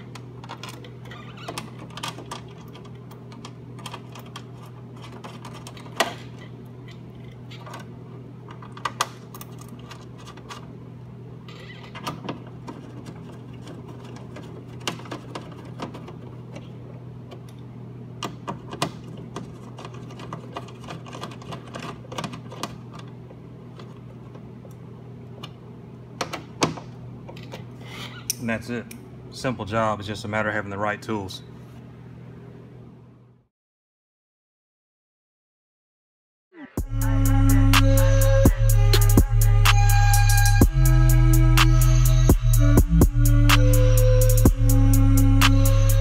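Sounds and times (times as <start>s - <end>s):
steady low hum: 36.6s - 46.0s.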